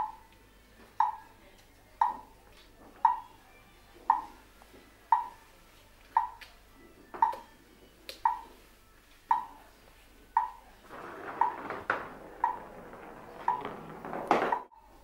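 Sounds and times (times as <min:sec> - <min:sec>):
sharp metallic ringing ticks: 0:08.3 - 0:08.5.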